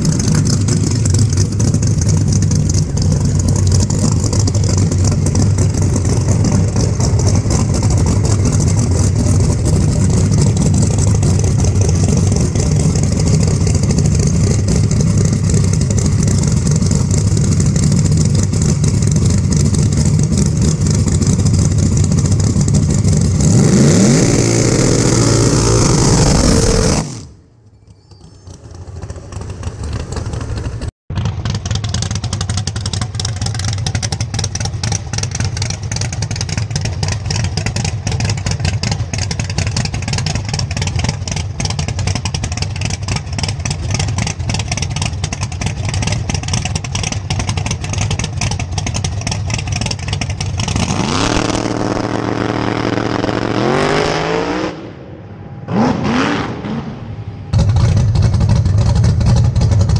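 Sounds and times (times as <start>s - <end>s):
race car engine revving: 0.0s - 27.4s, 49.8s - 59.9s.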